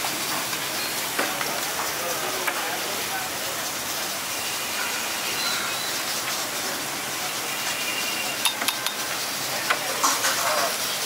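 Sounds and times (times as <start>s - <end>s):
liquid sizzling on hot griddle: 0.0s - 11.0s.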